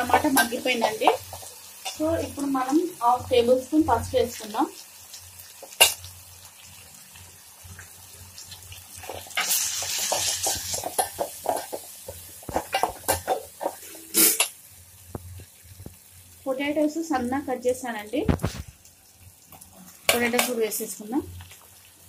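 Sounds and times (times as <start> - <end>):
light sizzle: 0.0 - 22.0
ladle scraping and knocking pot: 9.1 - 14.6.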